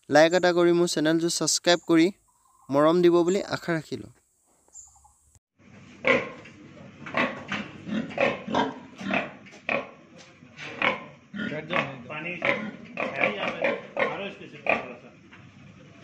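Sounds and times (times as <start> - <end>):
pig grunting: 6.0 - 10.0, 10.6 - 15.8.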